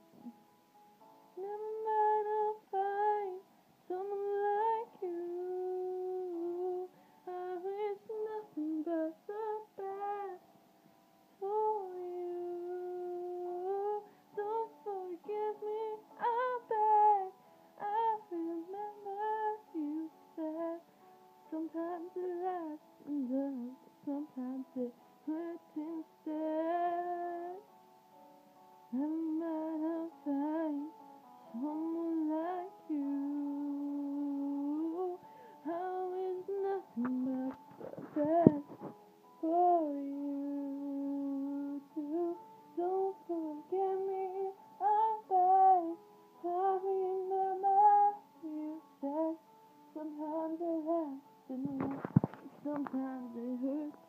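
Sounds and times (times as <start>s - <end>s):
woman singing: 1.4s - 10.4s, 11.4s - 27.7s, 28.9s - 54.0s.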